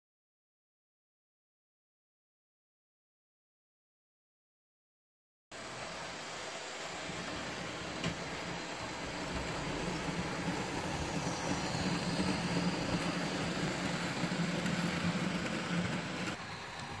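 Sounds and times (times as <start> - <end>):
model train motor humming: 5.6 - 17.0
wheels rattling over track: 7.1 - 17.0.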